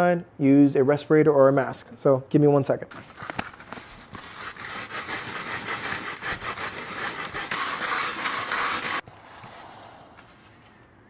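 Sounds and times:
sandpaper scratching styrofoam: 0:04.2 - 0:09.1.

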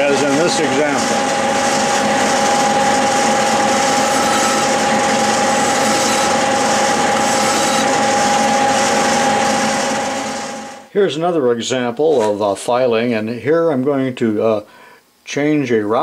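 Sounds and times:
metal lathe whine: 0:00.0 - 0:10.8
hand file on spinning metal: 0:00.2 - 0:10.5.

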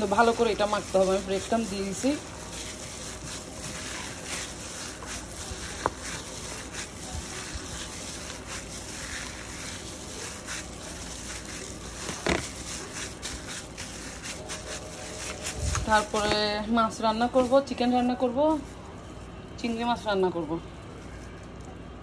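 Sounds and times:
wet squishing of mince: 0:00.0 - 0:16.6
plastic glove rustling: 0:00.0 - 0:22.0.

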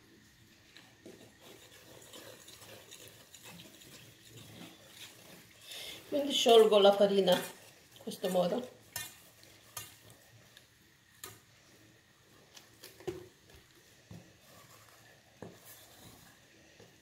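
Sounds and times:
utensil scraping and tapping bowl: 0:00.7 - 0:05.5, 0:06.3 - 0:10.1.

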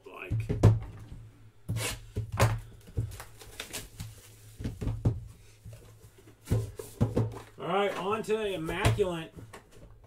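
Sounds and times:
cardboard box knocks and thumps: 0:04.6 - 0:05.3, 0:06.4 - 0:07.5.

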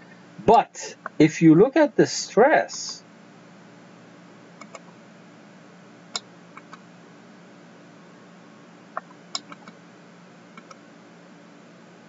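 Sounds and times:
steady low hum: 0:00.0 - 0:12.0
computer mouse clicks: 0:04.6 - 0:04.9, 0:06.1 - 0:06.8, 0:08.9 - 0:09.8, 0:10.5 - 0:10.8.

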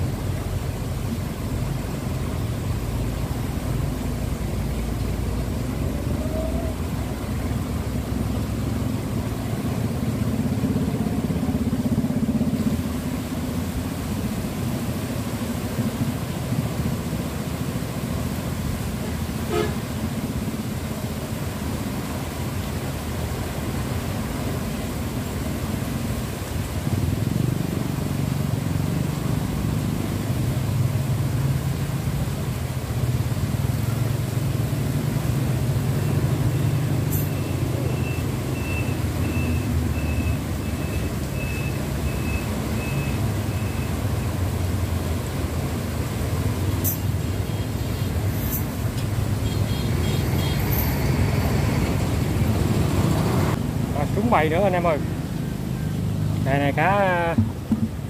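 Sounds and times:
truck reversing beeps: 0:37.1 - 0:44.3.

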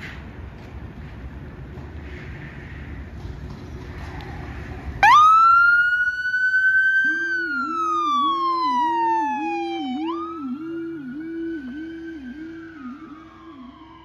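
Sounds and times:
low pulsing howler siren tone: 0:03.9 - 0:14.0
siren wailing: 0:05.0 - 0:14.0.

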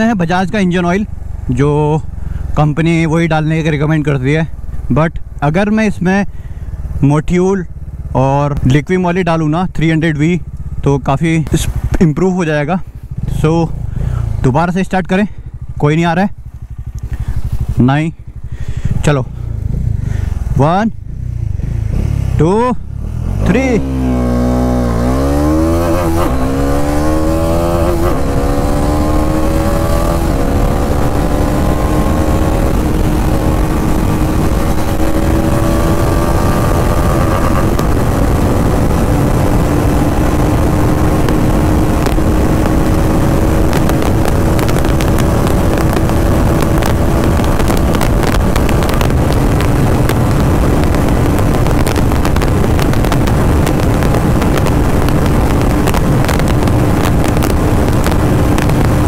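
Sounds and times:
motorcycle engine revving: 0:09.4 - 0:59.0
wind rush on microphone: 0:21.4 - 0:59.0.

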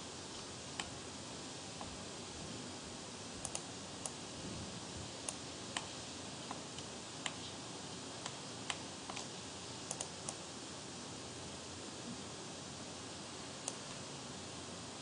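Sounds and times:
background hiss: 0:00.0 - 0:15.0
mouse and keyboard clicks: 0:03.4 - 0:04.2, 0:08.2 - 0:09.3, 0:09.9 - 0:10.4.

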